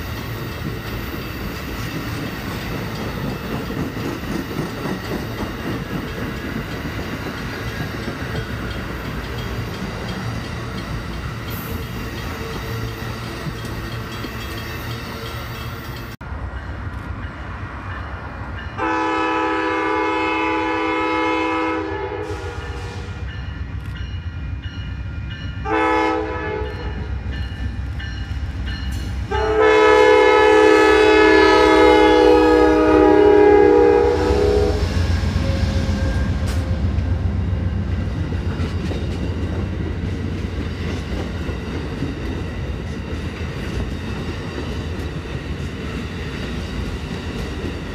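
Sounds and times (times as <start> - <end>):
train wheel clatter: 0.0 - 16.2, 35.0 - 47.9
train rumble: 0.0 - 47.9
train horn blasts: 18.8 - 23.4, 25.6 - 27.2, 29.3 - 37.3.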